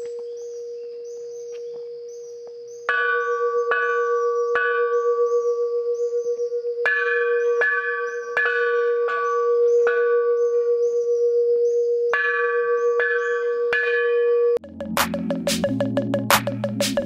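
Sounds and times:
long bell ringing: 2.9s - 14.6s
metal temple bells struck: 2.9s - 15.8s.

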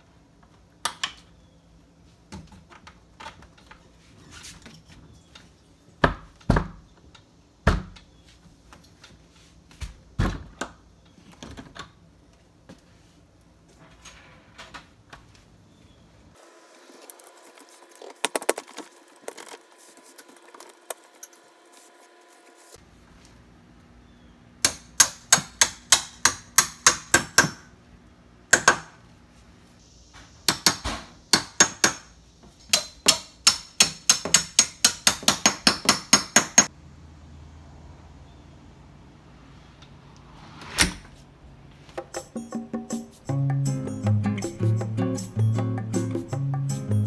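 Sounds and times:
hammer tapping metal pins: 32.7s - 36.7s.

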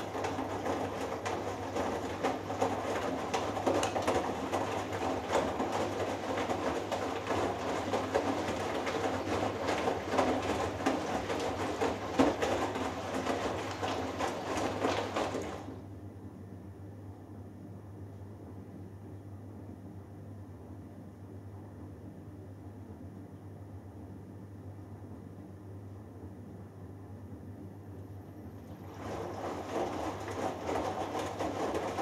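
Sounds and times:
water sloshing and splashing: 0.0s - 15.8s, 28.6s - 32.0s
washing machine drum tumbling: 0.0s - 15.9s, 28.6s - 32.0s.

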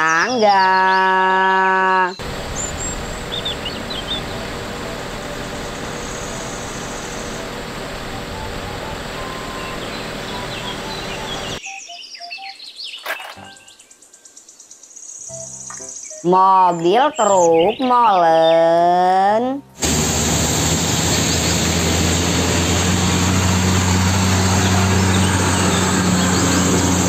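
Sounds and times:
birds chirping: 0.0s - 19.1s, 23.3s - 27.0s
mechanical drone of work platform: 2.2s - 11.6s.

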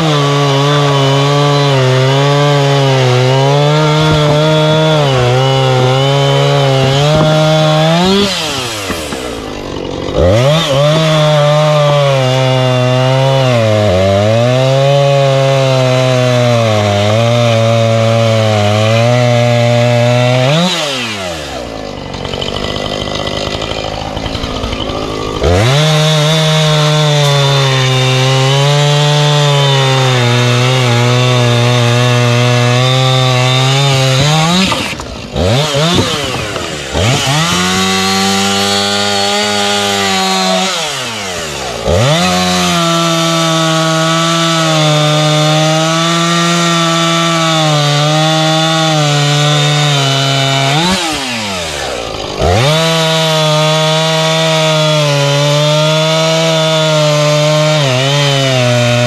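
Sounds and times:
chainsaw cutting wood: 0.0s - 59.0s.

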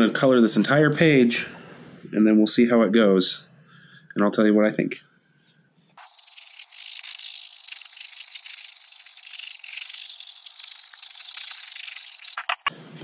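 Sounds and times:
gel pen scribbling on paper: 6.0s - 12.7s.

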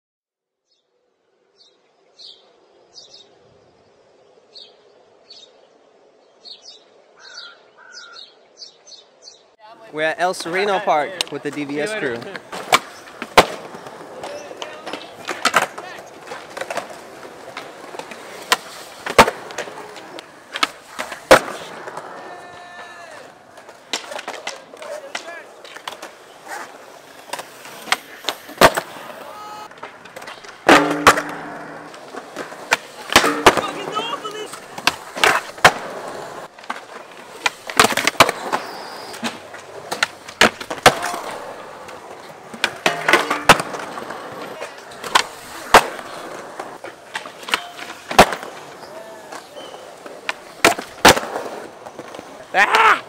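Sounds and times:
skateboard wheels rolling on concrete: 0.7s - 53.0s
skateboard clacking on ground: 10.3s - 52.5s.

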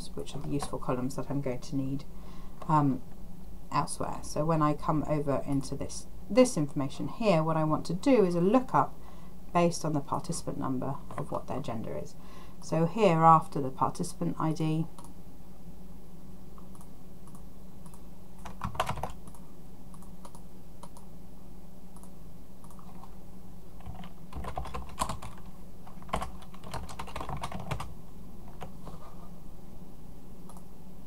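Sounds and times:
steady low hum: 0.0s - 31.0s
typing on computer keyboard: 16.8s - 19.4s, 23.8s - 27.9s.

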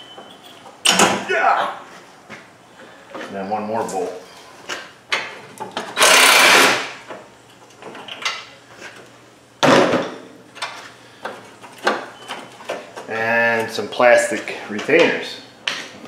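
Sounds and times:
cordless driver whirring: 6.0s - 6.8s.

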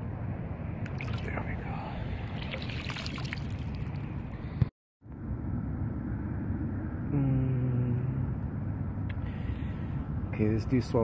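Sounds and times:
water splashing and dripping: 0.8s - 1.6s, 2.2s - 4.4s
low droning tone: 5.0s - 10.3s.

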